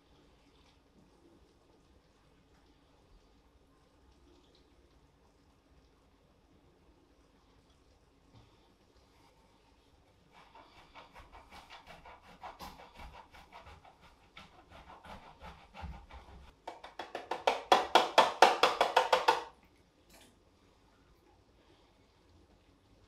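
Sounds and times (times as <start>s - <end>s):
cheese grating on a metal grater: 10.3s - 16.6s.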